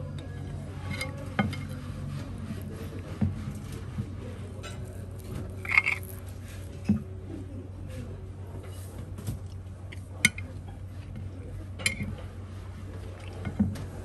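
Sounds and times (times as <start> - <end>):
low background hum: 0.0 - 14.0
cutlery and dishes clinking: 5.6 - 6.2, 10.2 - 10.5.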